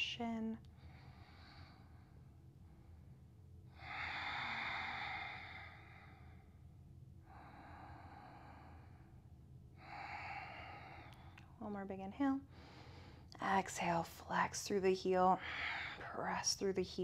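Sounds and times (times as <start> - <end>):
woman breathing deeply: 0.7 - 11.6, 12.5 - 13.4, 15.4 - 16.2.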